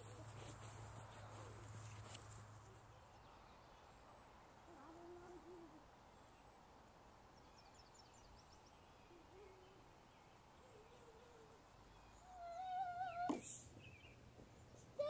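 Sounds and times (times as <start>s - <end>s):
faint low wavering animal calls: 4.6s - 6.4s, 9.0s - 13.4s.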